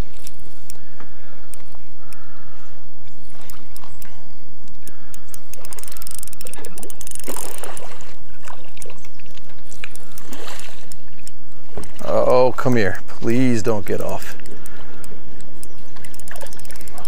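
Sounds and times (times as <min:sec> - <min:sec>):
fish thrashing and splashing: 0:03.2 - 0:12.7, 0:14.1 - 0:17.0.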